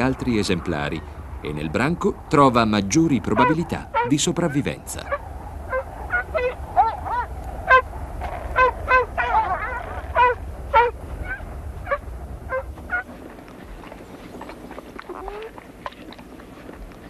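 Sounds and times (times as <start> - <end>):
wolves whining and yelping: 3.4 - 4.2, 5.1 - 17.0.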